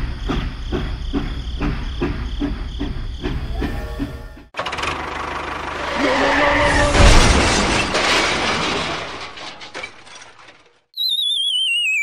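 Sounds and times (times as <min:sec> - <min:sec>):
clattering breaking crash: 0:05.8 - 0:10.9.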